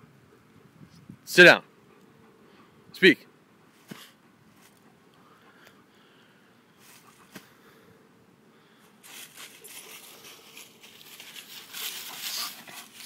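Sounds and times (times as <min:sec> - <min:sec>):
dog crunching through dry leaves: 0:09.0 - 0:13.0.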